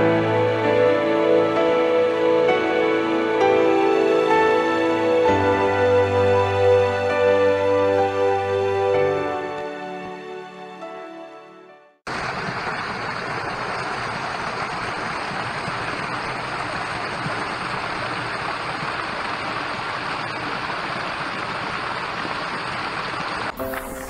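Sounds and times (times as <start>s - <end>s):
water splashing into a pool: 12.1s - 24.0s.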